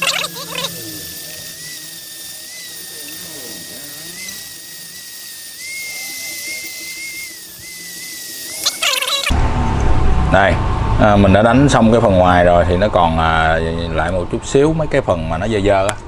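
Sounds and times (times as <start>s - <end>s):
rotary grinder whining: 0.0s - 9.4s.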